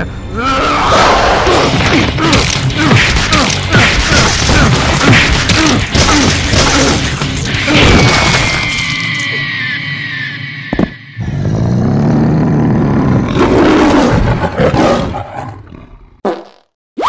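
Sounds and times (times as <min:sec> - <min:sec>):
music: 0:00.0 - 0:11.2
angry scream: 0:00.4 - 0:01.7
punching and smashing hits: 0:01.6 - 0:08.7.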